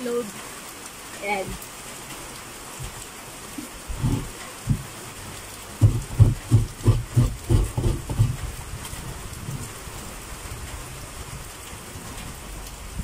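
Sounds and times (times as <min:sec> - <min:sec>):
rain patter: 0:00.0 - 0:13.0
coconut grating scraping strokes: 0:05.8 - 0:08.4.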